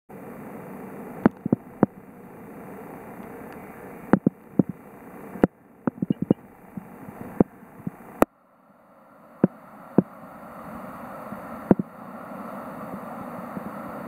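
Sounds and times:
sharp underwater clicks: 3.5s - 4.8s, 5.4s - 8.0s.

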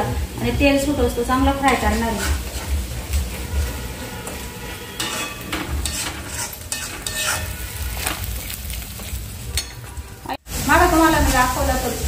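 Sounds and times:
paste sizzling in oil: 0.0s - 12.0s
spatula scraping a pan: 1.6s - 10.0s.

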